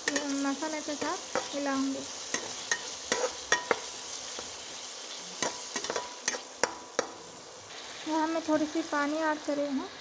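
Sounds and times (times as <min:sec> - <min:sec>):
spatula scraping a pan: 0:00.0 - 0:04.7, 0:05.4 - 0:07.1
food sizzling in a frying pan: 0:00.0 - 0:10.0.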